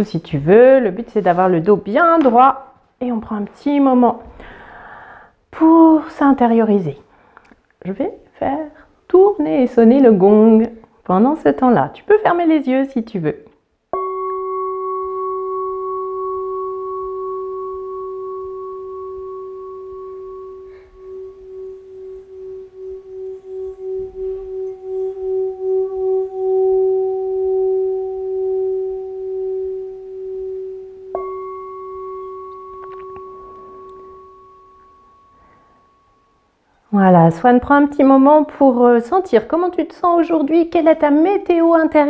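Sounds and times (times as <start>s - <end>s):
stick rubbing bowl rim: 14.0s - 36.1s
singing bowl ringing: 14.0s - 36.7s.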